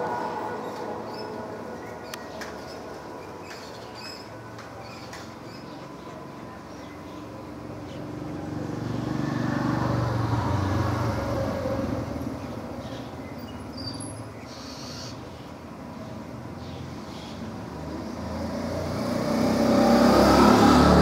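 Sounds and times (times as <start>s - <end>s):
road vehicle passing: 5.2s - 14.4s, 16.9s - 21.0s.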